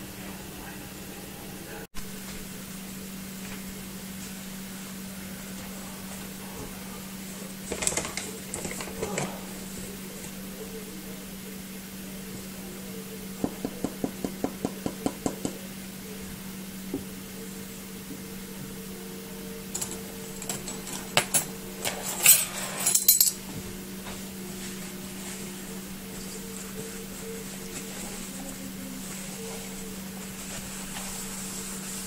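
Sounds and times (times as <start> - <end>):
utensils clinking on steel bowl: 19.7 - 23.4
metallic scrapes: 21.8 - 23.4.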